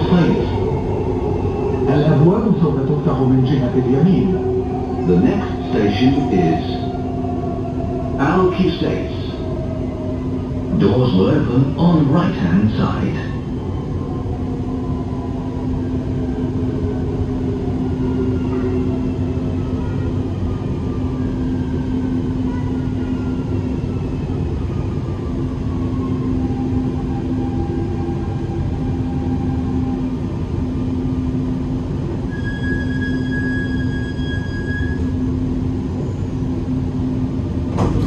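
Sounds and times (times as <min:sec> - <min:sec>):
steady high tone: 0:00.0 - 0:20.1
train rumbling: 0:00.0 - 0:38.0.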